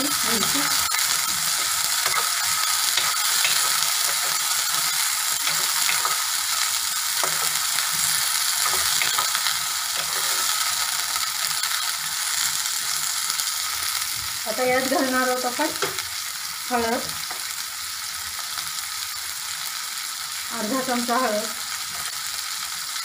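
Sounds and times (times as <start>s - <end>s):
peppers sizzling in hot oil: 0.0s - 23.0s
wooden spatula scraping a pan: 7.2s - 10.8s.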